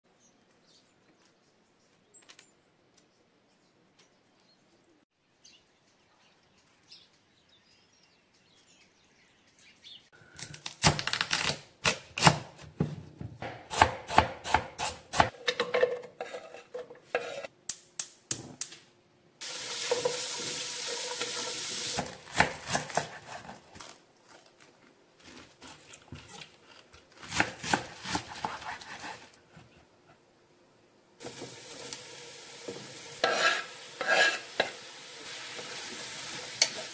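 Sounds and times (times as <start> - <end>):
knife chopping on wooden board: 12.2 - 15.3, 22.0 - 23.6, 27.2 - 29.2.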